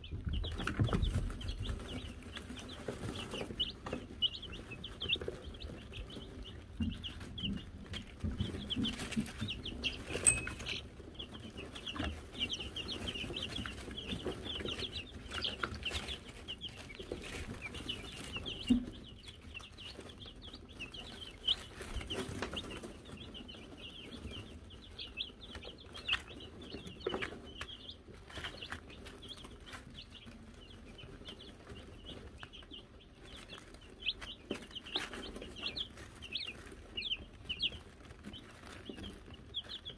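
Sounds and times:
chicks peeping: 0.0 - 39.9
small bell ringing: 10.2 - 10.8.

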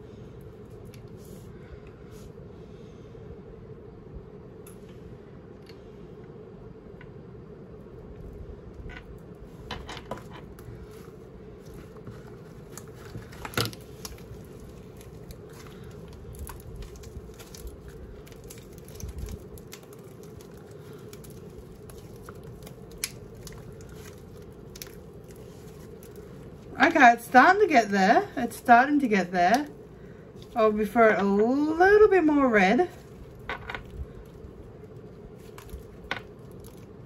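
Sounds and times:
faint steady hum: 0.0 - 37.0
sticky slime clicks and crackles: 12.7 - 26.7, 33.0 - 37.0.

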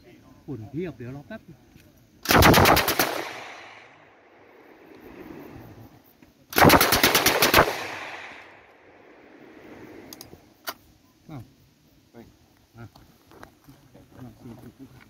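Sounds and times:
sharp crack: 2.2 - 4.2, 6.5 - 9.0
machine gun burst echoing: 2.3 - 4.1, 6.6 - 8.6.

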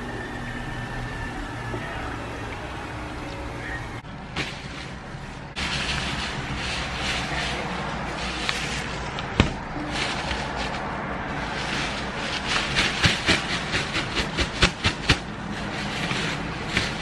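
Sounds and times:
steady traffic noise: 0.0 - 17.0
plastic bag rustling: 4.1 - 17.0.

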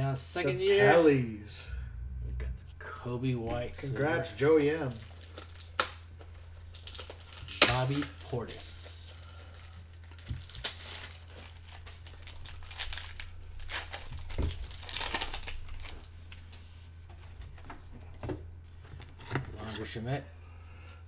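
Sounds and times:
steady low hum: 0.0 - 21.0
wrappers crinkling and rustling: 4.6 - 16.7.

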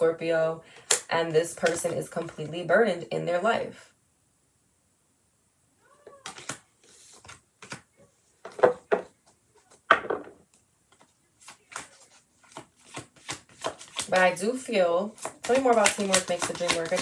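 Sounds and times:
cards being shuffled: 0.8 - 2.5, 6.2 - 9.9, 10.5 - 17.0.

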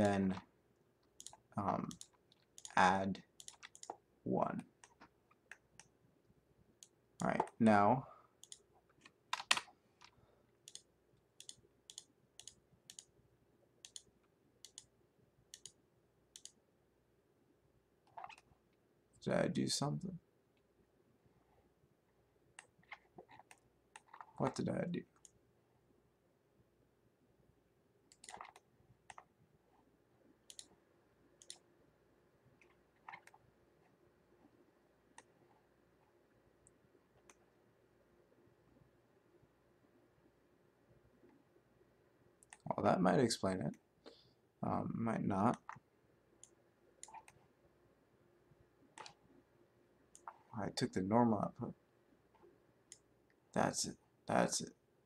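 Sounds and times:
faint steady hum: 0.0 - 55.0
mouse and keyboard clicks: 1.2 - 2.8, 3.4 - 4.0, 8.4 - 10.1, 18.1 - 18.5, 22.6 - 24.4, 28.1 - 29.3, 32.6 - 33.4, 46.4 - 47.4, 49.0 - 49.2, 50.2 - 50.5.

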